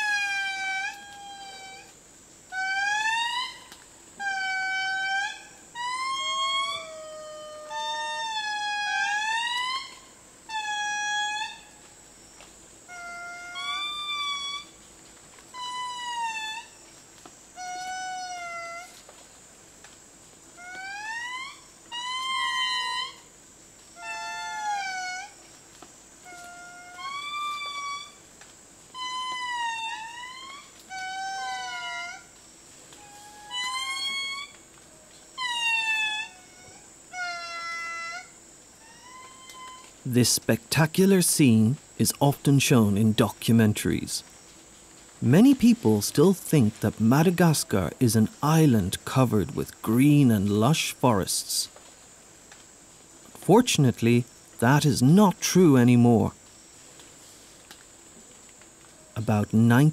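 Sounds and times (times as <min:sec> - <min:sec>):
lemurs wailing chorus: 0:00.0 - 0:01.9, 0:02.5 - 0:11.8, 0:12.9 - 0:14.8, 0:15.5 - 0:16.8, 0:17.6 - 0:19.0, 0:20.6 - 0:23.3, 0:24.0 - 0:25.4, 0:26.2 - 0:28.2, 0:28.9 - 0:32.4, 0:33.0 - 0:34.6, 0:35.4 - 0:43.3.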